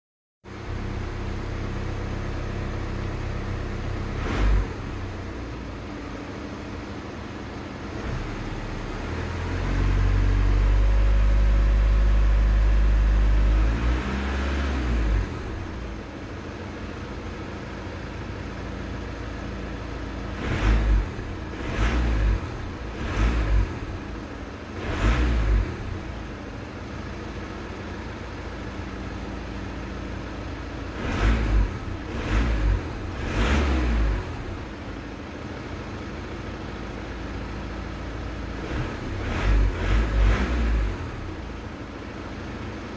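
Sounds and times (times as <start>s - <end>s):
car engine idling: 0.5s - 14.0s, 15.0s - 42.9s
car engine revving: 3.8s - 5.6s, 7.8s - 16.1s, 20.2s - 26.3s, 30.8s - 35.1s, 38.5s - 41.8s.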